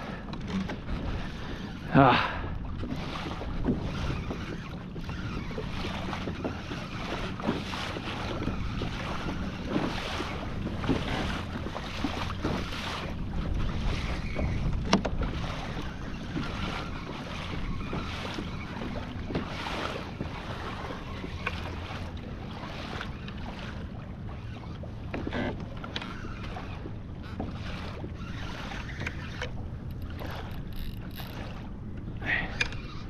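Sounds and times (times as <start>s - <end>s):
wind buffeting microphone: 0.0s - 25.0s
water sloshing and splashing: 0.0s - 33.0s.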